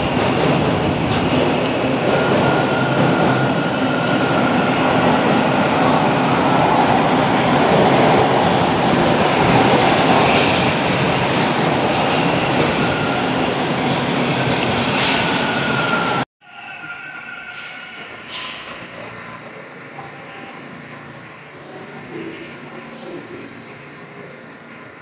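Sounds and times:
subway trains rumbling: 0.0 - 25.0
faint wheel squeals: 16.6 - 19.4.

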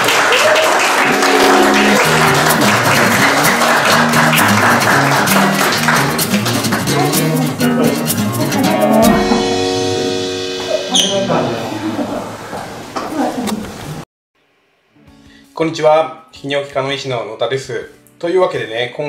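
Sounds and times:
people applauding: 0.0 - 9.1
background music: 0.8 - 12.3.

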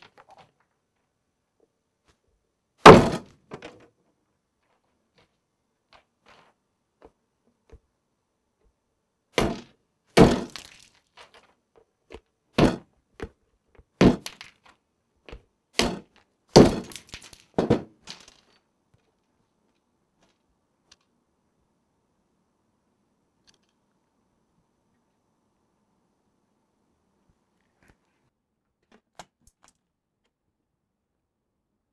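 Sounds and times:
hammer cracking walnut shell: 9.4 - 11.0, 15.8 - 18.3.

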